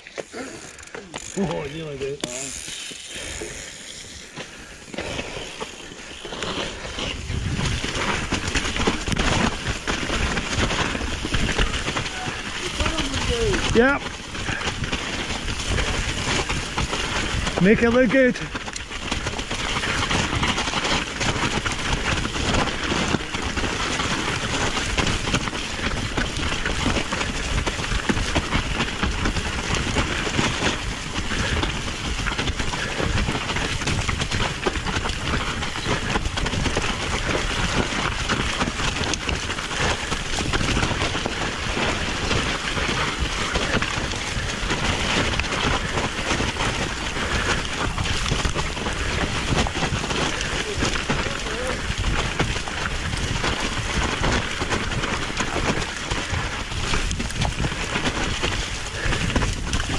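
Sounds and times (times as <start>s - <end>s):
wheels rolling over snowy track: 0.0s - 59.9s
wind on microphone: 6.8s - 17.9s.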